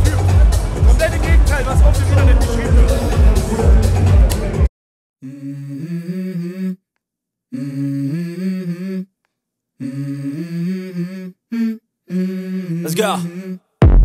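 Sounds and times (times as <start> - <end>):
person humming: 5.2 - 6.9, 7.5 - 9.1, 9.8 - 13.7.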